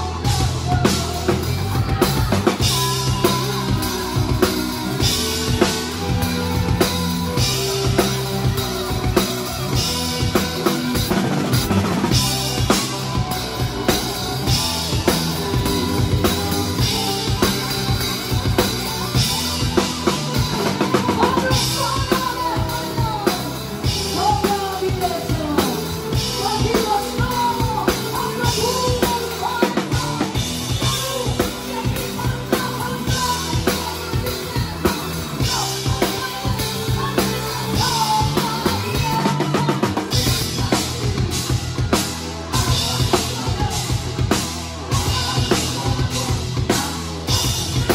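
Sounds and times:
bass line: 0.0s - 47.9s
drums and cymbals: 0.0s - 47.9s
rock band playing: 0.0s - 47.9s.

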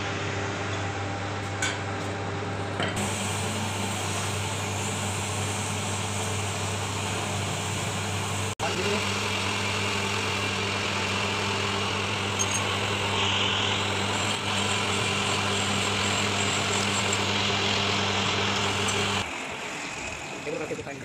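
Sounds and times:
lathe motor humming: 3.0s - 21.0s.

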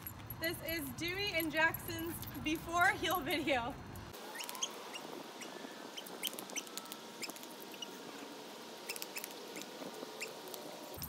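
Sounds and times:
faint outdoor hiss: 0.0s - 11.0s
small birds chirping: 4.2s - 11.0s.

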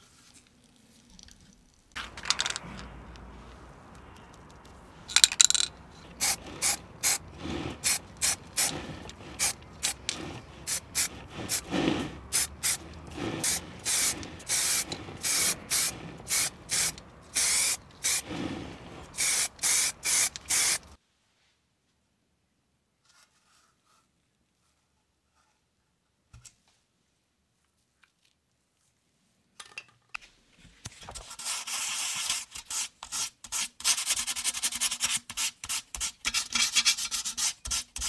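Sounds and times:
spray paint can hissing: 5.2s - 21.0s.

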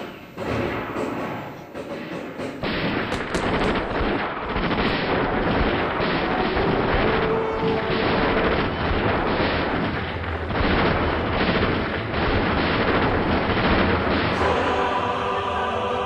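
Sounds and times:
dense rumbling noise: 3.1s - 15.9s
choir singing: 14.3s - 16.0s.

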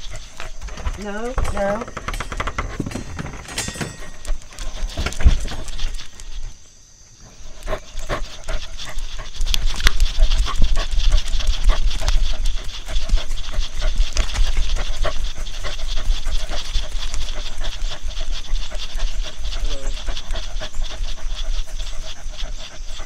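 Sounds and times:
dog panting: 0.0s - 6.6s, 7.2s - 23.0s
scattered clicks: 7.6s - 21.1s.

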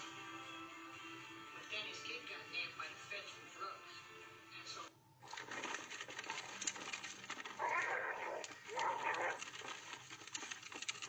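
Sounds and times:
bin wheels rattling on pavement: 5.3s - 11.0s
dog vocalizing: 6.3s - 11.0s.

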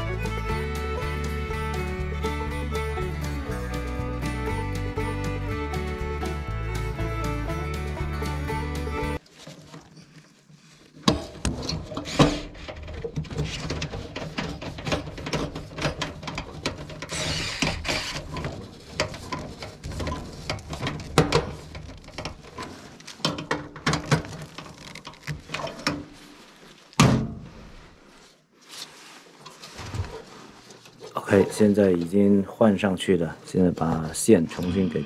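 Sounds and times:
hand tool clattering on sheet metal: 11.1s - 22.3s.

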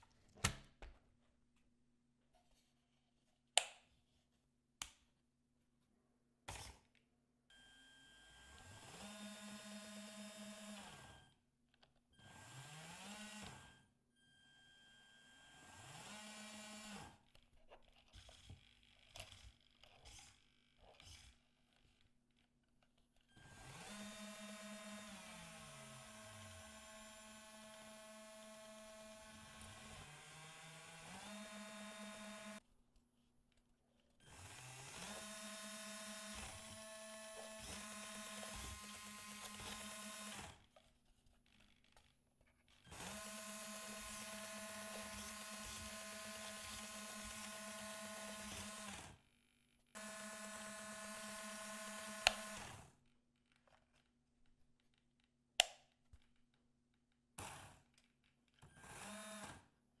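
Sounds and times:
small gear motors whining: 23.3s - 32.6s, 34.2s - 40.7s, 42.8s - 49.2s, 50.0s - 52.8s, 58.7s - 59.6s.

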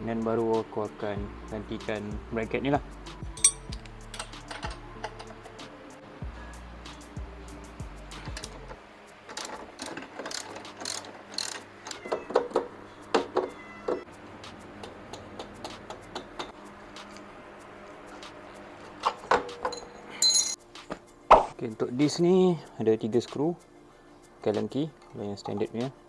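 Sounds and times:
wrench metallic clicks and clanks: 3.4s - 5.6s, 8.2s - 12.6s.

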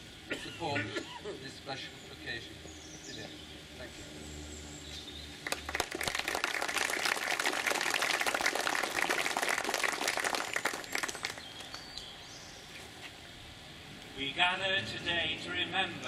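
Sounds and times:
crowd applauding: 5.4s - 11.8s.

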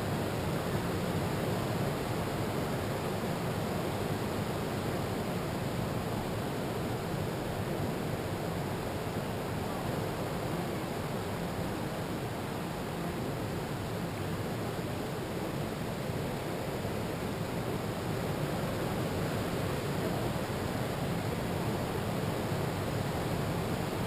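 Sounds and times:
wind: 0.0s - 24.0s.

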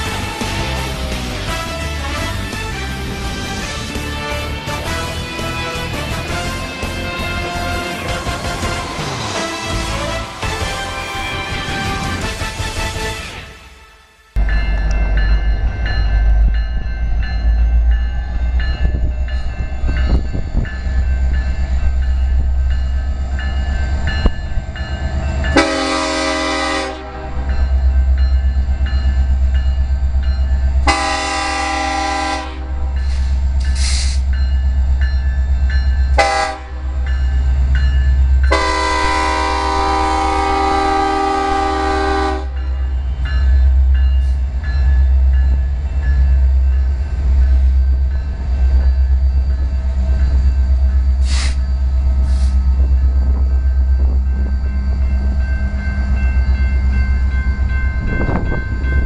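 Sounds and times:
locomotive air horn: 0.0s - 14.2s, 25.6s - 27.5s, 30.8s - 33.0s, 36.2s - 37.0s, 38.5s - 42.6s.

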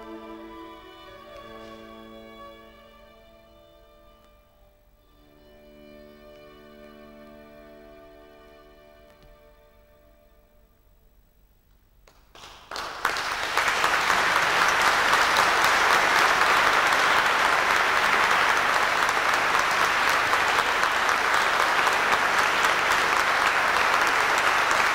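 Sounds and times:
audience applauding: 12.1s - 24.9s.

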